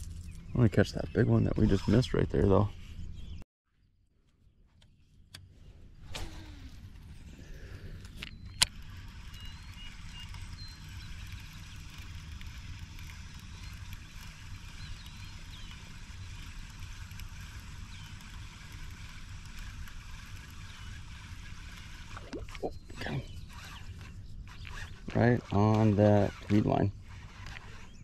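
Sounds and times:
fishing reel whirring: 6.0s - 28.0s.

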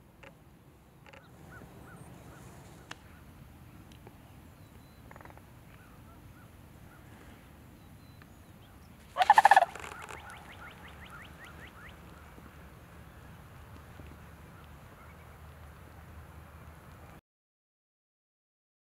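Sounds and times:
small birds chirping: 1.0s - 15.5s
crane rattling bugle call: 9.2s - 10.6s.

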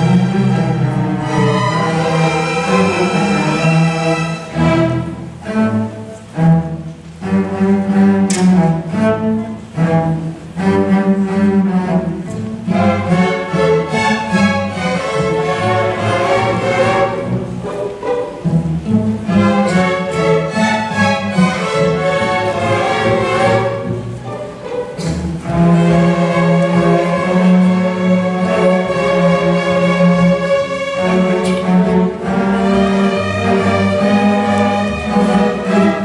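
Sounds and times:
string orchestra playing: 0.0s - 36.0s
sharp click: 8.3s - 8.5s.

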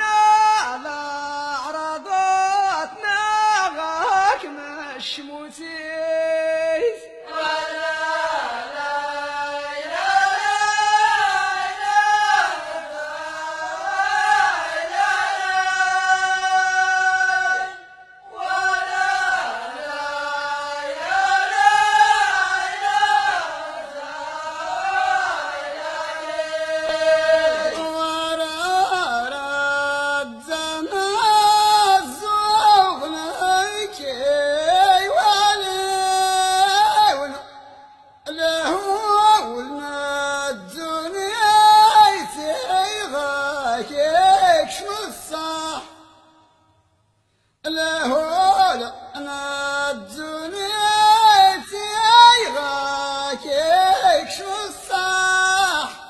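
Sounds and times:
voices chanting a sung verse: 6.3s - 46.2s.

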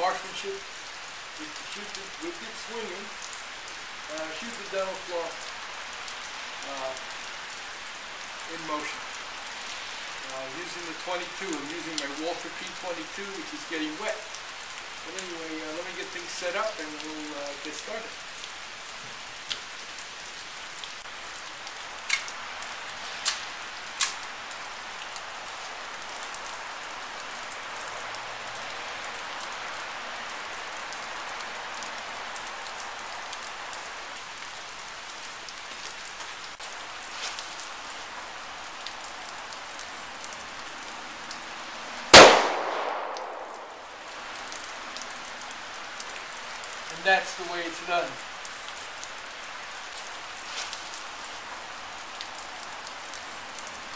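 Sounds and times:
rain hissing: 0.0s - 53.9s
light sharp ticks: 22.0s - 22.4s, 23.2s - 24.2s
pistol shot with echo: 42.2s - 43.7s.

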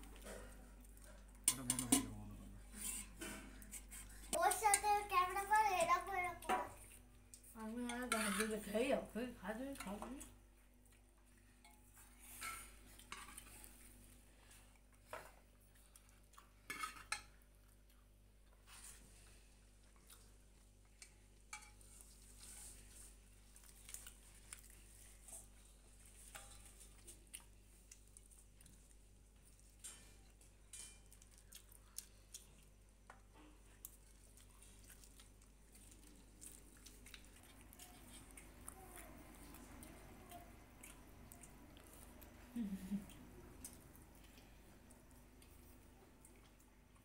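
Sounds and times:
spoon clinking on steel dishes: 1.4s - 2.2s, 21.5s - 21.8s.

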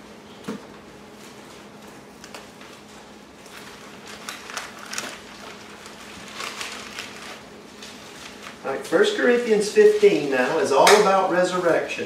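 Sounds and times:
faint room hum: 0.0s - 12.0s
pages turning: 2.2s - 8.6s.

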